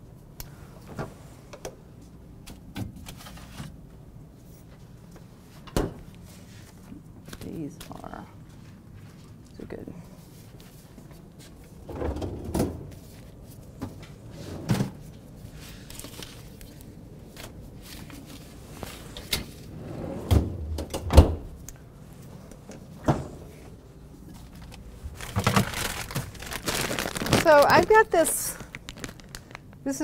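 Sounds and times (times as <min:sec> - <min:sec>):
refrigerator door opening and closing: 0:11.8 - 0:13.0, 0:19.2 - 0:21.7, 0:23.0 - 0:23.6, 0:25.0 - 0:26.3.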